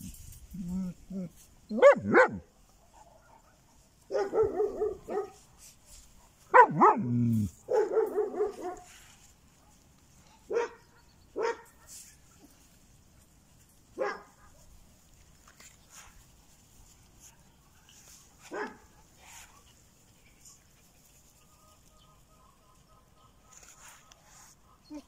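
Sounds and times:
puppy yelping: 0.7s - 2.4s
puppies yapping: 1.2s - 2.4s.

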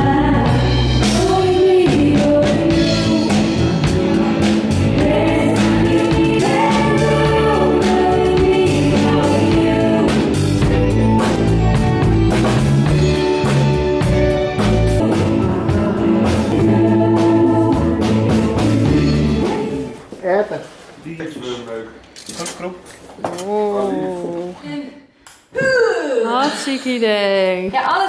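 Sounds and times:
woman singing: 0.0s - 10.4s, 15.0s - 20.0s
electric bass guitar: 0.0s - 19.8s
drums: 0.0s - 21.4s.

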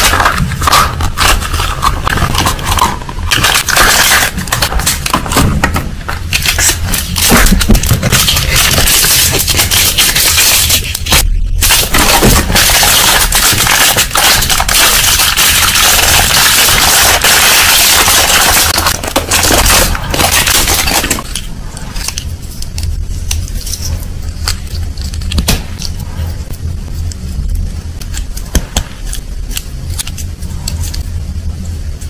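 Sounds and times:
plastic wrapper crinkling: 0.0s - 5.4s, 6.0s - 26.0s
steady low hum: 0.0s - 32.0s.

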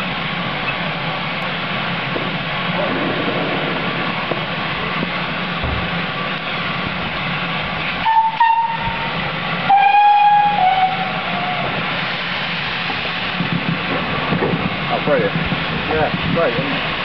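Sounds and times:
steam locomotive whistle: 8.0s - 11.8s
hiss of escaping steam: 11.0s - 15.3s.

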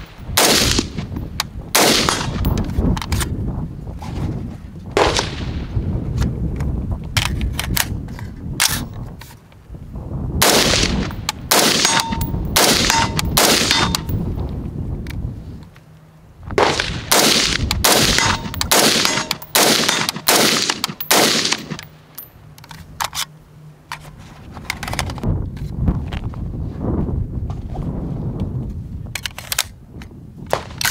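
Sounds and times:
rifle firing single shots: 0.0s - 1.0s, 1.8s - 2.5s, 5.0s - 5.5s, 10.4s - 14.1s, 16.6s - 21.9s.

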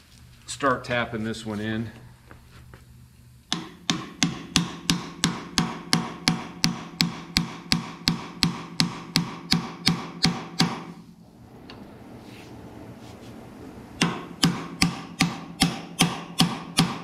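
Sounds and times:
hammer tapping on steel: 3.5s - 10.9s.

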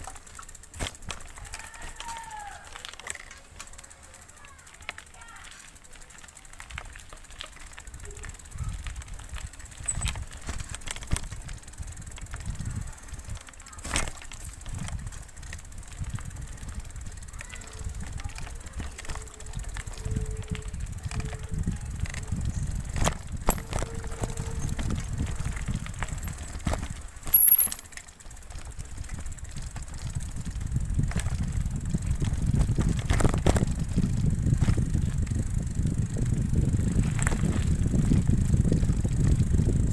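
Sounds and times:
bicycle tyres on dirt: 0.0s - 39.9s
bike rattling over stones: 0.0s - 39.9s
wind on microphone: 8.5s - 13.0s, 15.9s - 27.0s, 28.9s - 39.9s.

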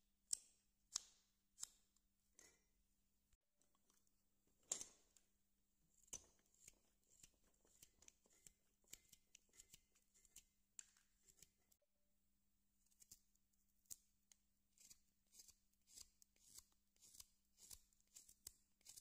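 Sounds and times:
knife carving wood: 5.9s - 11.6s, 12.9s - 14.1s, 14.7s - 19.0s.

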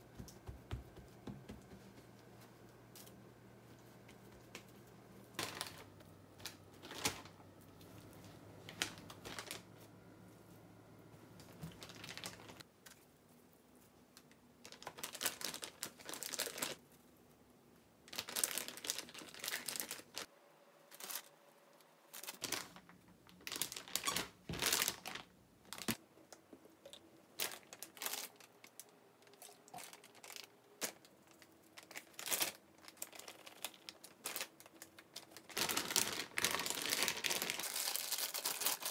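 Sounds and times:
plastic bags crinkling: 4.6s - 9.8s, 11.6s - 12.7s, 14.6s - 16.8s, 18.1s - 20.3s, 22.1s - 26.0s, 27.3s - 38.9s.

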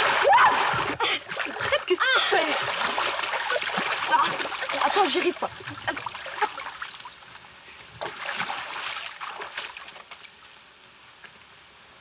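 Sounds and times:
water sloshing and splashing: 0.0s - 10.4s
faint steady hiss: 4.5s - 12.0s.

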